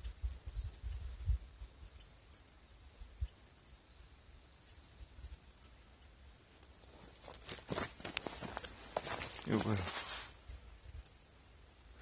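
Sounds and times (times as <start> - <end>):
small high bird chirps: 3.8 - 6.8
rustling and clicks: 6.6 - 10.4.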